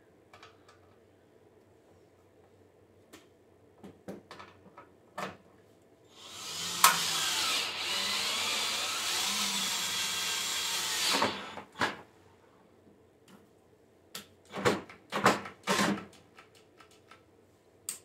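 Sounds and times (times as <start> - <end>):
cordless drill spinning a bolt: 6.2 - 11.6.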